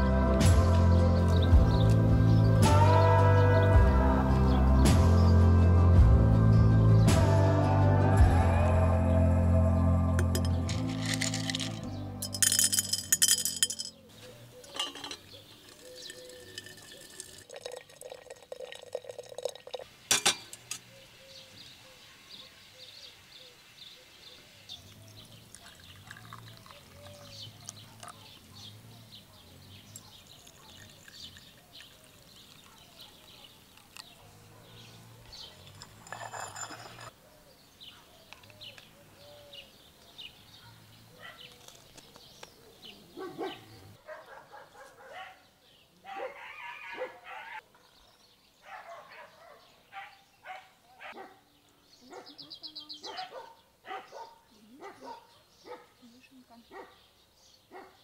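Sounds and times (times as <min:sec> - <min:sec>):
tea pouring into cups: 0:10.2 - 0:13.9, 0:14.6 - 0:20.8, 0:24.9 - 0:28.2, 0:29.9 - 0:34.1, 0:35.4 - 0:37.1
glass clink: 0:10.2 - 0:14.0, 0:14.6 - 0:20.6, 0:35.6 - 0:37.1
small birds chirping: 0:13.1 - 0:19.4, 0:20.5 - 0:58.0.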